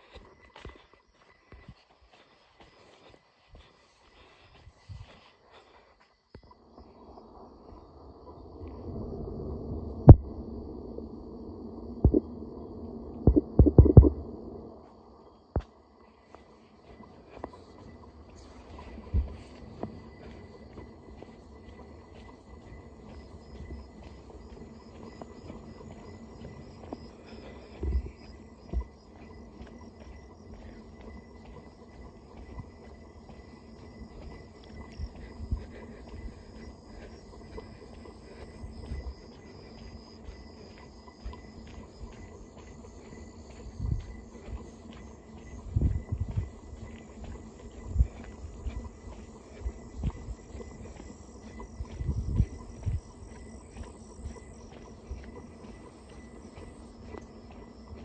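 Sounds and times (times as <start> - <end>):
insects chirring: 0.0 - 58.0
low thumps: 12.0 - 12.3, 13.2 - 14.3.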